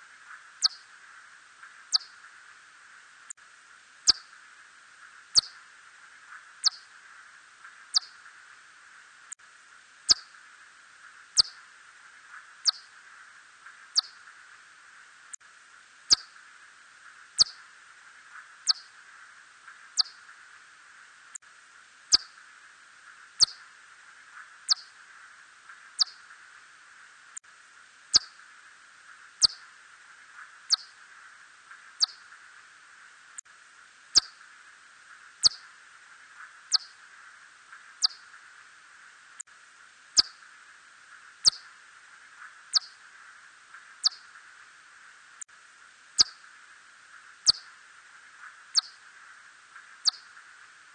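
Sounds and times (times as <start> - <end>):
steady hiss: 0.0 - 50.9
bat chirps: 0.6 - 0.8, 1.9 - 2.2, 4.1 - 4.3, 5.4 - 5.6, 6.6 - 6.9, 7.9 - 8.2, 10.1 - 10.3, 11.4 - 11.6, 12.6 - 12.9, 13.9 - 14.2, 16.1 - 16.4, 17.4 - 17.6, 18.6 - 18.9, 20.0 - 20.2, 22.1 - 22.3, 23.4 - 23.6, 24.7 - 24.9, 26.0 - 26.2, 28.1 - 28.4, 29.4 - 29.7, 30.7 - 30.9, 32.0 - 32.2, 34.2 - 34.4, 35.4 - 35.6, 36.7 - 37.0, 38.0 - 38.3, 40.2 - 40.4, 41.4 - 41.7, 42.7 - 43.0, 44.0 - 44.4, 46.2 - 46.4, 47.4 - 47.8, 48.7 - 49.0, 50.0 - 50.4.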